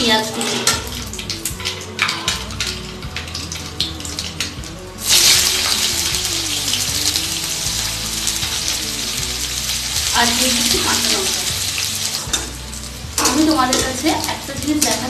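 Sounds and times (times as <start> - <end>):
seeds crackling in hot oil: 0.1 - 15.0
onions sizzling in oil: 5.0 - 15.0.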